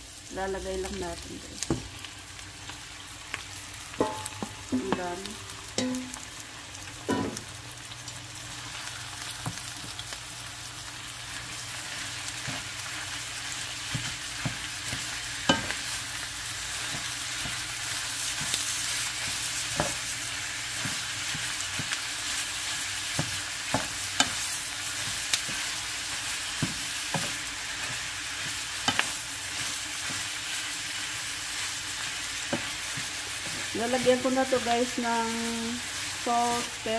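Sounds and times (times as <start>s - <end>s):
meat sizzling in a pan: 0.0s - 36.9s
wooden spatula knocking on pan: 4.0s - 5.1s.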